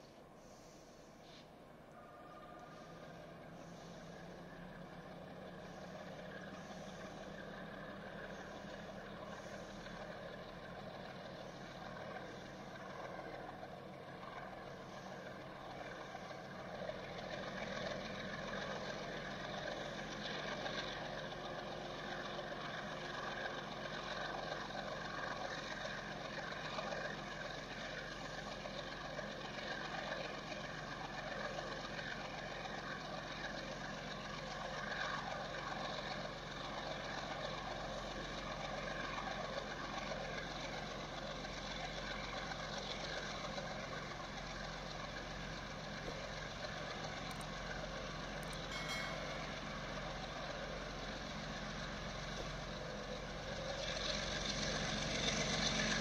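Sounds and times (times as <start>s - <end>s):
distant diesel locomotive engine drone: 0.0s - 56.0s.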